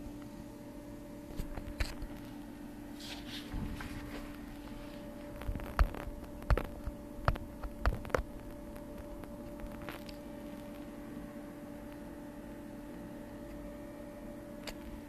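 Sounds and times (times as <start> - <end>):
steady low hum: 0.0 - 15.0
paper sheets handled: 3.0 - 6.1.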